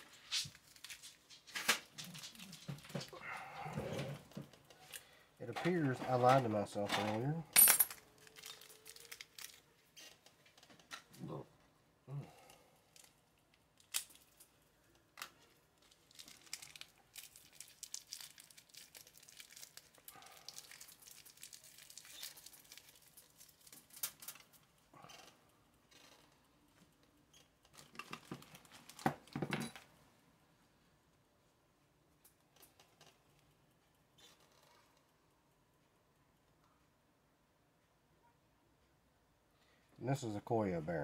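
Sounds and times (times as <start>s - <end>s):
crinkling plastic packaging: 0.0s - 3.2s, 8.0s - 11.0s, 12.9s - 24.7s, 27.7s - 29.3s.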